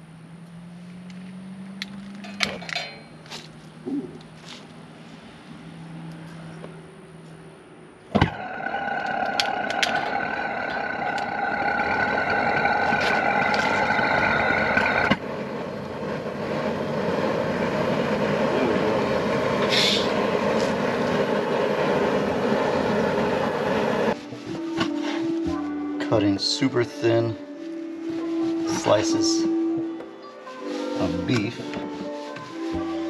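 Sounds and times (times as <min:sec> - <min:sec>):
gas burner roaring: 0:08.1 - 0:25.2
burner whistling tone: 0:08.2 - 0:24.2.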